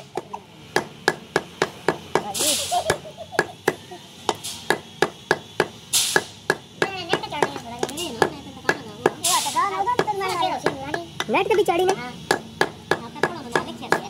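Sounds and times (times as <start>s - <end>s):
cleaver chopping on wooden block: 2.9s - 9.2s, 10.0s - 14.0s
brief hiss: 5.9s - 6.3s.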